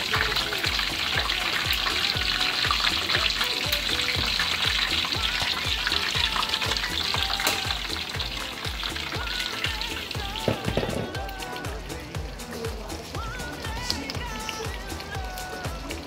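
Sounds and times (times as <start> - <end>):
background music beat: 0.0 - 16.0
fish frying in hot oil: 0.0 - 16.0.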